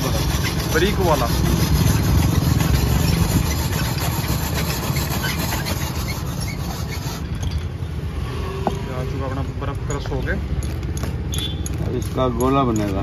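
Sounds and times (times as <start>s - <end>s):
ice-shaving machine rasping: 0.0s - 7.3s.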